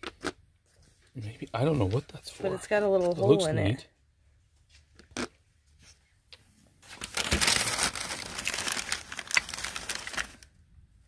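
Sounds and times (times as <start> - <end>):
packing paper crinkling: 6.8 - 10.6.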